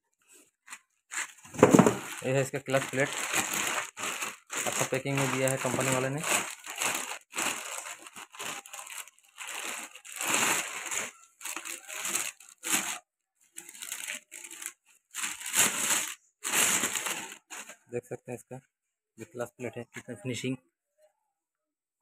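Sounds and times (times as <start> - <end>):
plastic bags crinkling: 0.3 - 17.9.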